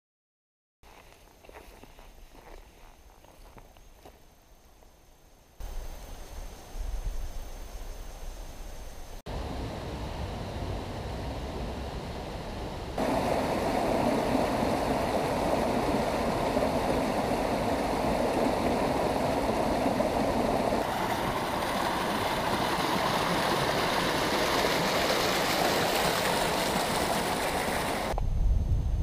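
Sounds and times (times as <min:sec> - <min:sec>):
low rumble: 0:06.8 - 0:20.8
creek flowing over rocks: 0:13.0 - 0:28.2.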